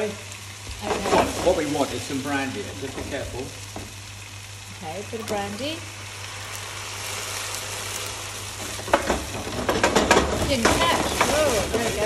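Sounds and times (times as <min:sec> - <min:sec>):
sizzling in a frying pan: 0:00.0 - 0:12.0
pan clattering: 0:08.6 - 0:12.0.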